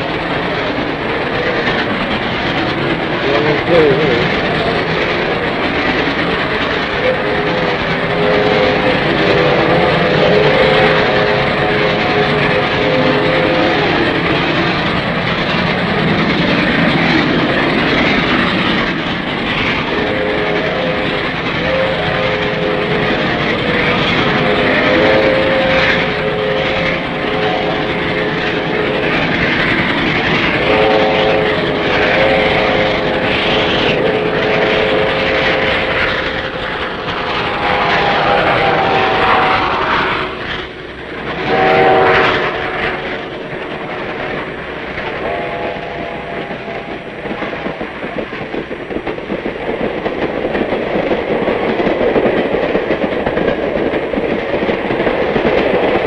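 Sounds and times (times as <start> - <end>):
train rumble and clatter: 0.0 - 56.0
steam whistle blasts: 7.0 - 13.9, 24.7 - 27.9, 30.6 - 36.0, 37.4 - 40.4, 41.4 - 43.1.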